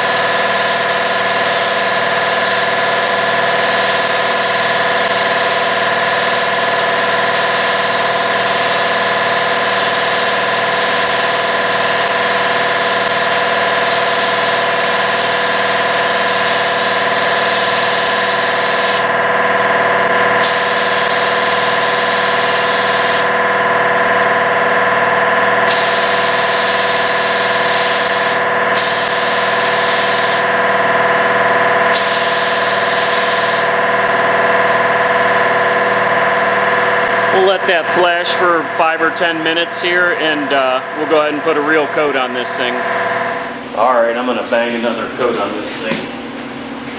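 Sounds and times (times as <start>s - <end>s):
spray gun hissing: 0.0s - 19.1s, 20.4s - 23.4s, 25.7s - 30.5s, 31.9s - 33.7s
machine hum with held tones: 0.0s - 46.9s.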